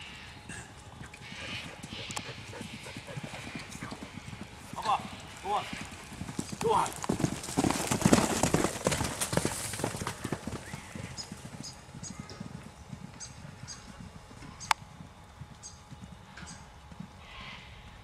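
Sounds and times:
horse hooves clip-clopping: 0.7 - 17.2.

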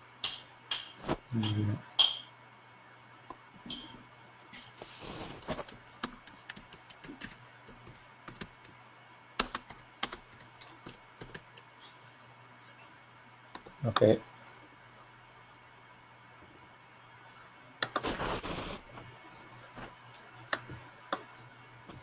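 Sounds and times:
faint electrical hum: 0.0 - 22.0
keyboard keystrokes and clicks: 5.4 - 8.8, 9.4 - 11.7, 17.8 - 18.0.

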